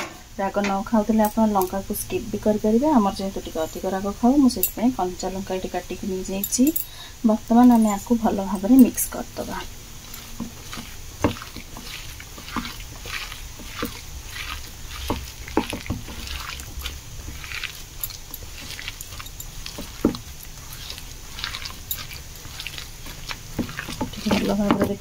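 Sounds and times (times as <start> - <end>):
hand squelching batter in bowl: 7.3 - 25.0.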